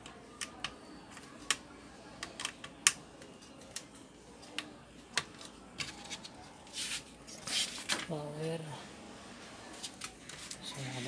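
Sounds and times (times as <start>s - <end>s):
laptop parts clicking: 0.0s - 6.3s.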